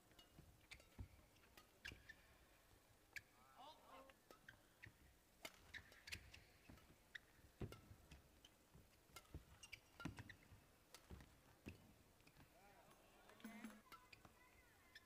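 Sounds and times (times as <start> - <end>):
racket hitting shuttlecock: 5.4 - 8.0.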